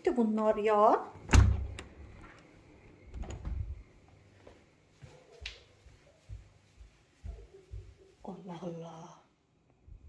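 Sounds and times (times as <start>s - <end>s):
door latch click and thump: 1.3s - 1.9s.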